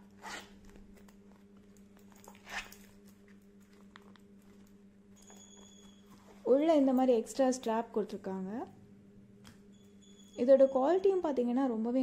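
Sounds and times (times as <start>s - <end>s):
steady low hum: 0.0s - 12.0s
purse rustling: 0.1s - 6.6s.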